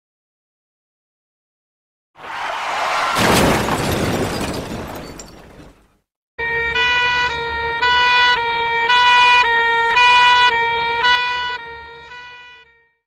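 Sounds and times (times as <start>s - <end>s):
two-tone emergency siren: 6.4s - 13.0s.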